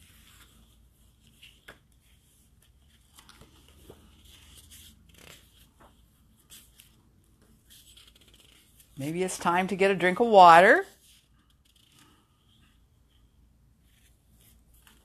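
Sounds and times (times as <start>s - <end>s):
paper rustling: 0.0s - 9.0s, 13.8s - 15.0s.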